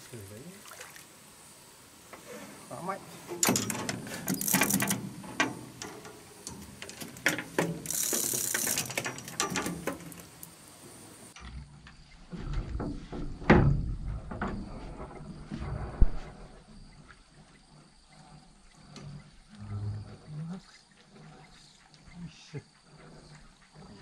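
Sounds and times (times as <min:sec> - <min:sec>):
fishing reel clicking: 0:04.3 - 0:05.0, 0:07.8 - 0:09.3.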